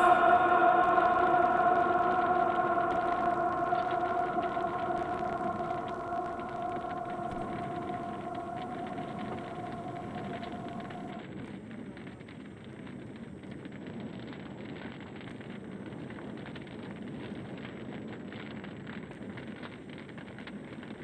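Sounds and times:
faint high whine: 0:00.0 - 0:11.2
crackling static hiss: 0:00.0 - 0:21.0.

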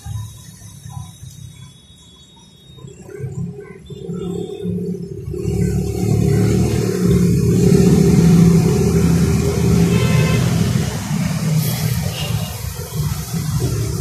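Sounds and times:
engine running: 0:03.0 - 0:14.0.

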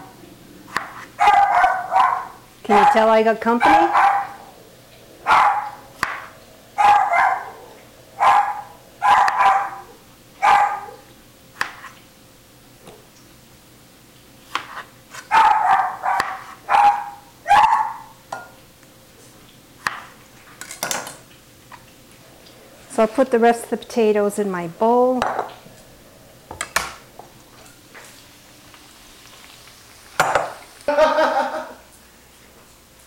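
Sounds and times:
dog barking: 0:01.2 - 0:04.6, 0:05.2 - 0:05.9, 0:06.8 - 0:11.1, 0:15.3 - 0:18.2.

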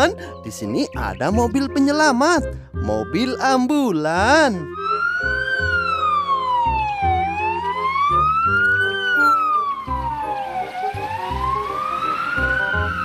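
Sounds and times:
background music with low beat: 0:00.0 - 0:13.0
ambulance siren wailing: 0:04.2 - 0:13.0.

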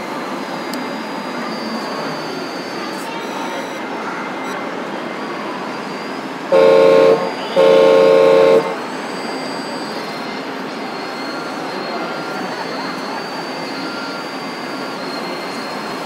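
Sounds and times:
hall noise hum: 0:06.4 - 0:09.0
two-note air horn blasts: 0:06.5 - 0:08.8.

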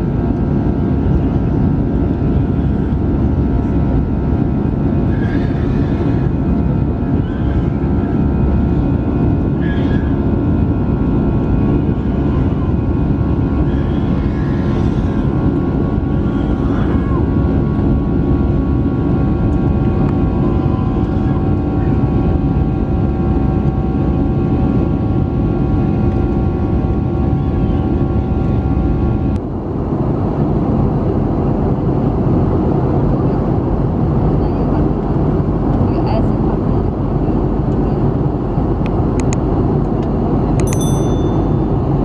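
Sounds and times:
jet engine cabin noise: 0:00.0 - 0:42.0.

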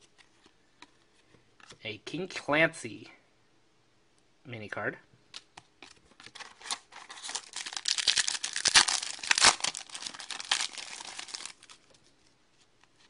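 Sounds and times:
foil wrapper crinkling: 0:06.2 - 0:12.0.

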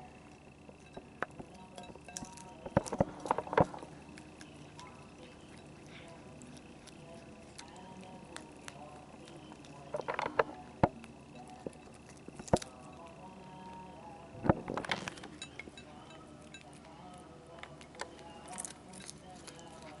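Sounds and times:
cat chewing: 0:00.0 - 0:20.0.

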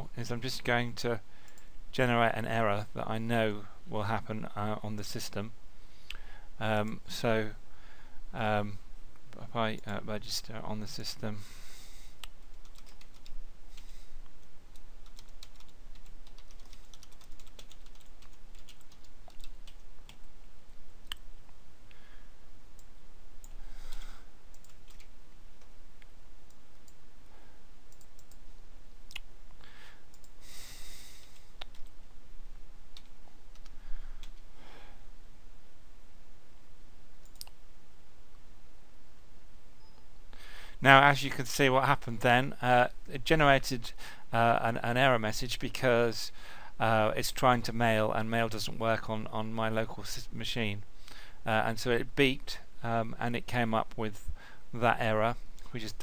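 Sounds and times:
typing on computer keyboard: 0:12.6 - 0:13.3, 0:15.0 - 0:20.2, 0:24.6 - 0:25.1.

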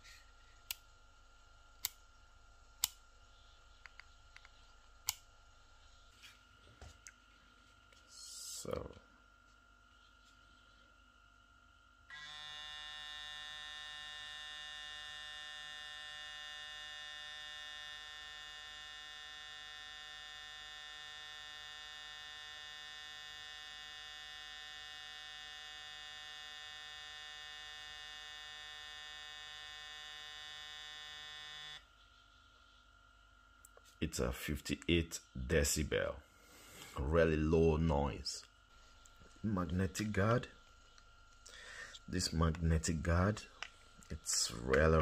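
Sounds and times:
hair clipper motor humming: 0:12.1 - 0:31.9.

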